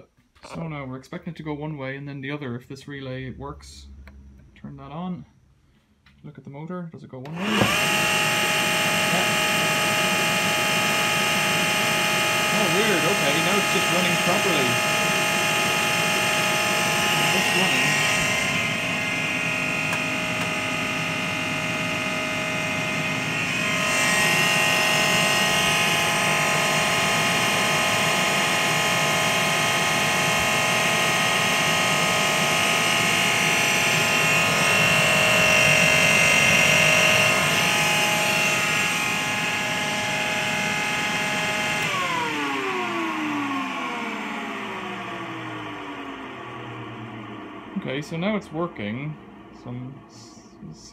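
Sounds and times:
dryer motor whine: 7.3 - 50.9.

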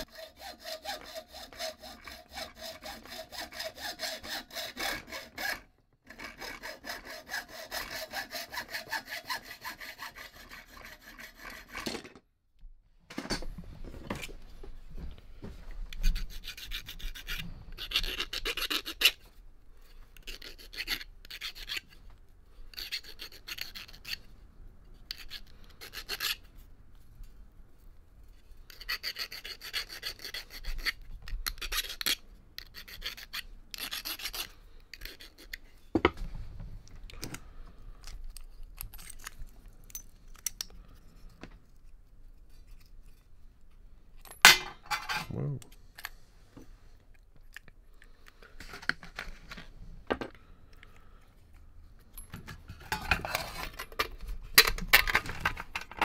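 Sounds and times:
file rasping copper pipe: 0.0 - 12.0, 16.0 - 19.2, 20.2 - 21.9, 22.7 - 24.2, 25.0 - 26.4, 28.7 - 35.6.

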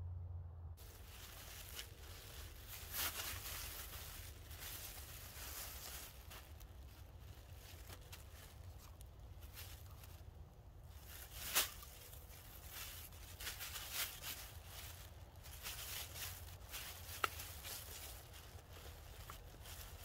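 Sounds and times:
plastic bag crinkling: 0.8 - 20.0.

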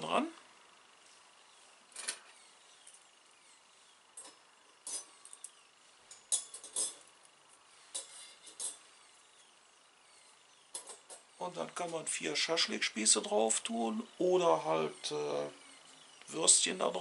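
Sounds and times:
metal skewers clinking: 4.2 - 7.1, 7.9 - 8.8.

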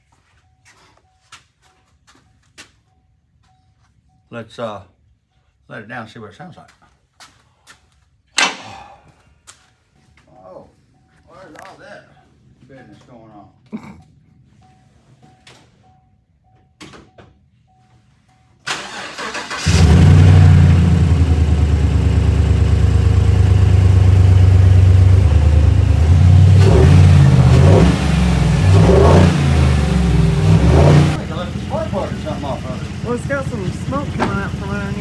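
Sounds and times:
truck engine cranking and idling: 18.6 - 35.0
engine revving: 18.7 - 35.0.

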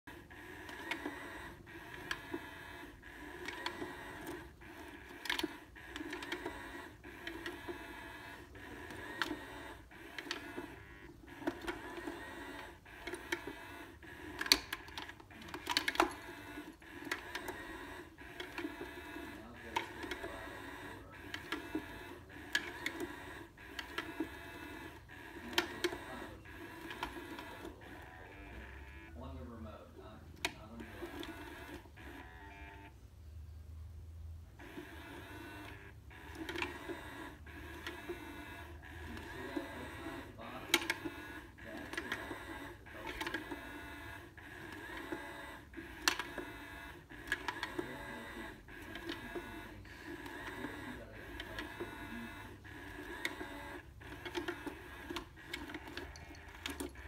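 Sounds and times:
small toy motor running: 0.1 - 32.9, 34.6 - 57.0.

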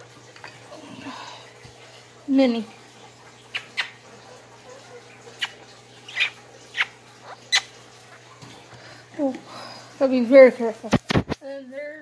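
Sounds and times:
squeaky lip smacks: 3.5 - 4.0, 5.4 - 7.7.

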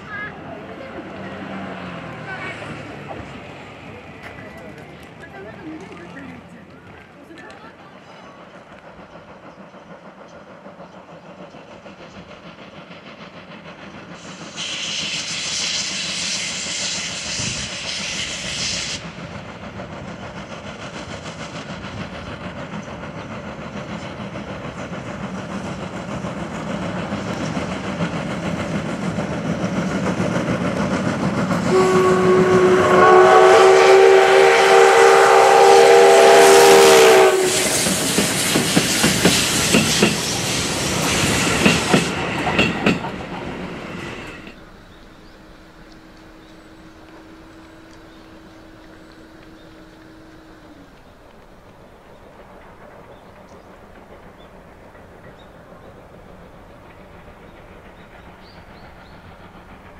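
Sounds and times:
steam locomotive exhaust beats: 0.0 - 59.9
loud steam hiss: 7.7 - 59.9
steam whistle blast: 31.7 - 37.9.

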